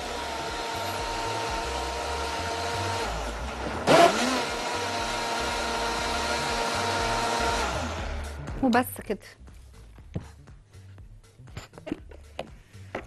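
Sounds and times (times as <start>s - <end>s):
electric blender running: 0.0s - 8.4s.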